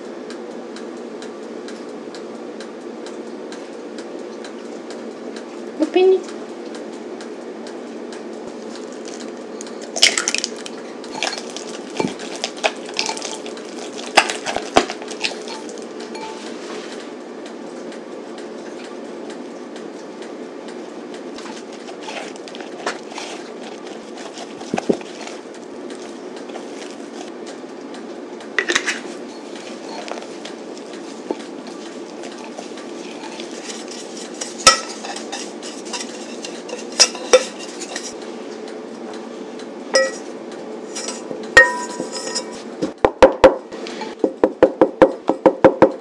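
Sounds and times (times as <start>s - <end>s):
steady low hum: 0.0s - 44.2s
utensils scraping a glass bowl: 11.1s - 17.0s, 21.4s - 25.4s, 28.7s - 38.2s, 40.0s - 40.3s, 40.9s - 42.7s.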